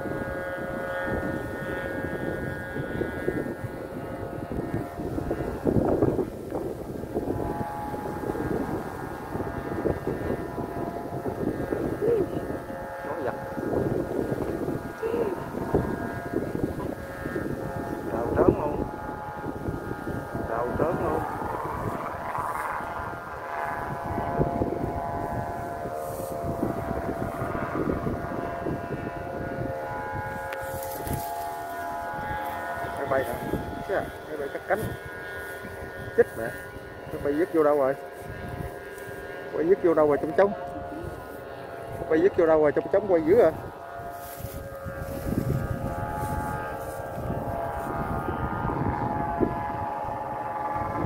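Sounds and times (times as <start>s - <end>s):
kite flutes humming: 0.0s - 51.0s
wind buffeting microphone: 0.0s - 51.0s.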